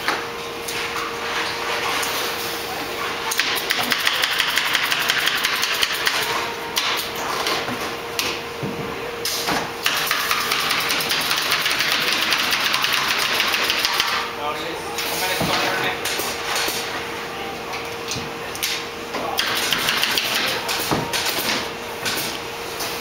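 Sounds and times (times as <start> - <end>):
steady machine hum: 0.0 - 23.0.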